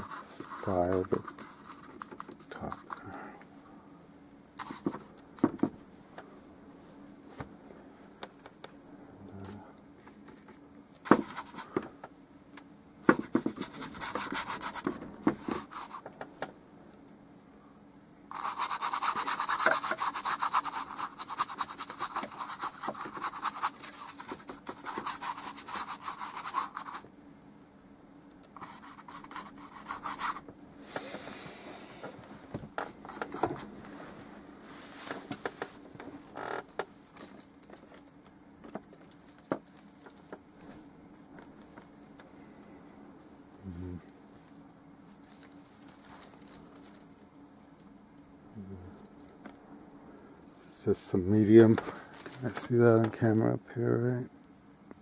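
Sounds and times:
paintbrush scrubbing on canvas: 0:00.0 - 0:03.0, 0:11.1 - 0:11.7, 0:13.1 - 0:16.0, 0:18.3 - 0:27.0, 0:28.6 - 0:30.4.

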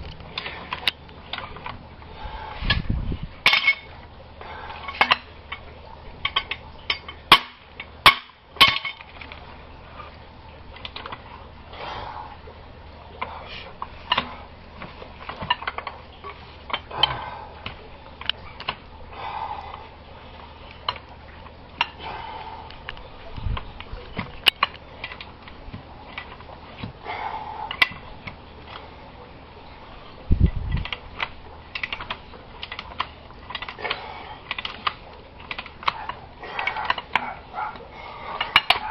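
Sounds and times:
metal fittings and tools clinking: 0:03.4 - 0:03.9, 0:38.3 - 0:38.9.

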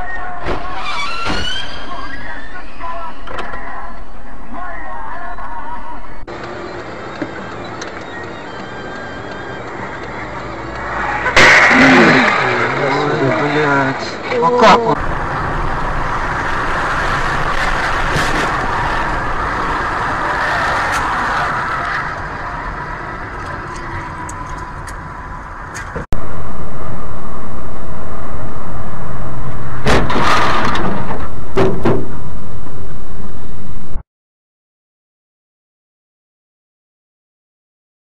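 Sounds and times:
car road and engine noise: 0:00.0 - 0:34.0
loud distorted rushing noise: 0:10.9 - 0:13.9, 0:15.0 - 0:24.2.

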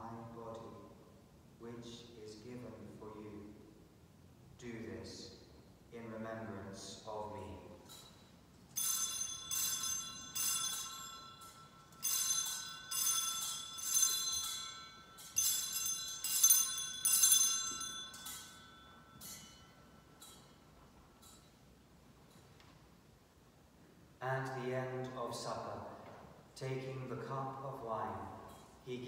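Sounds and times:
altar bells ringing: 0:07.9 - 0:22.5, 0:28.3 - 0:29.0.

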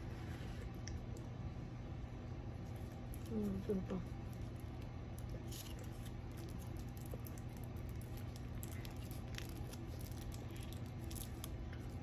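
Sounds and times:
steady low hum: 0:00.0 - 0:12.0
plastic sachet crinkling: 0:02.8 - 0:12.0.

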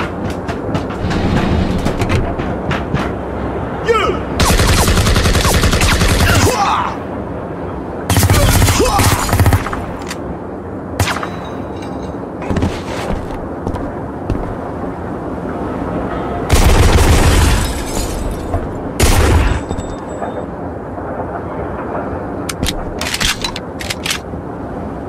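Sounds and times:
sharp gunshots: 0:04.4 - 0:06.5.

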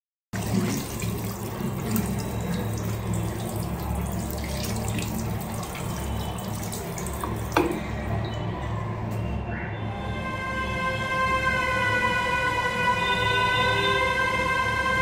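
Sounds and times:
tap water running into sink: 0:00.4 - 0:07.9.

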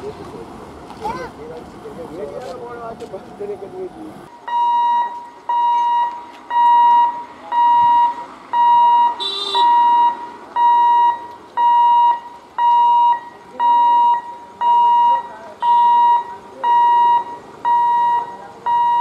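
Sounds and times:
level crossing warning beeps: 0:04.4 - 0:19.0.

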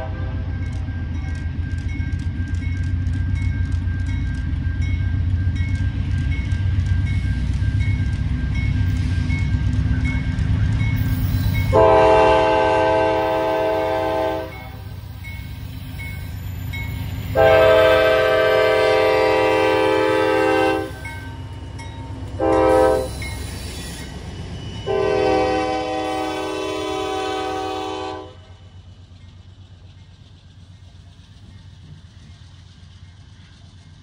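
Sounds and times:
locomotive air horn blasts: 0:00.0 - 0:00.6, 0:11.7 - 0:14.9, 0:17.3 - 0:21.1, 0:22.4 - 0:23.2, 0:24.9 - 0:28.5
diesel locomotives rumbling: 0:00.0 - 0:34.0.

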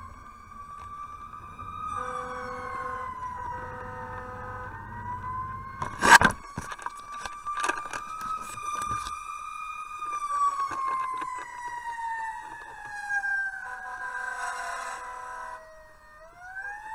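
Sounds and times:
fire engine siren wailing: 0:00.0 - 0:16.9
steady low siren tone: 0:00.0 - 0:16.9
camera knock and rustle: 0:05.8 - 0:09.3, 0:10.0 - 0:13.2.

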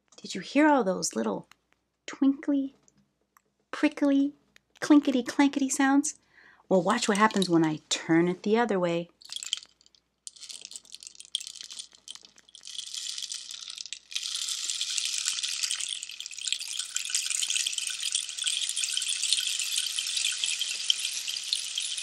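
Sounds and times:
rain stick trickling: 0:06.9 - 0:07.7, 0:09.2 - 0:22.0.

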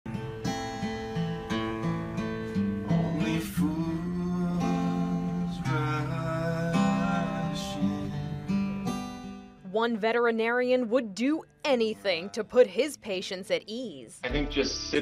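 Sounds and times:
acoustic guitar strumming: 0:00.1 - 0:13.6
man singing: 0:03.0 - 0:08.5.

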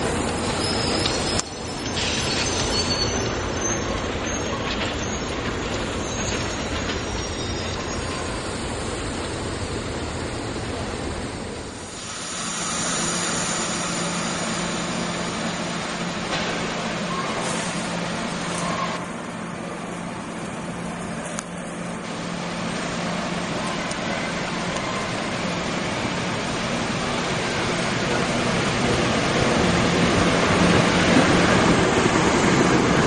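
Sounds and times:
diesel locomotive approaching: 0:00.0 - 0:33.0
electric train humming: 0:00.0 - 0:33.0
echoing station hiss: 0:11.8 - 0:15.9.

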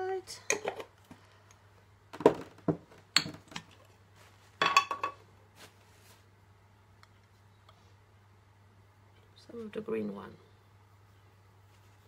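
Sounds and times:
glass jars clinking: 0:04.6 - 0:05.2.

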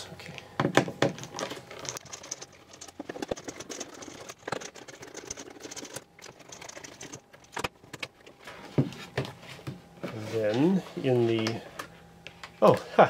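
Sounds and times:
plastic parts clicking and rustling: 0:01.0 - 0:08.4.

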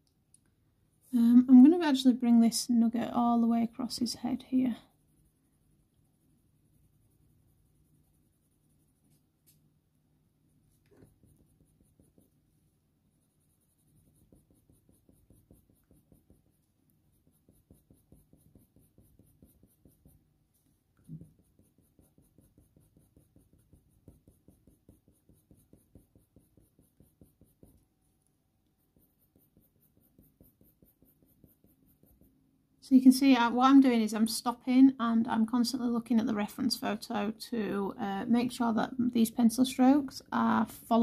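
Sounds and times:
pencil scratching on paper: 0:02.8 - 0:09.7, 0:10.3 - 0:34.0.

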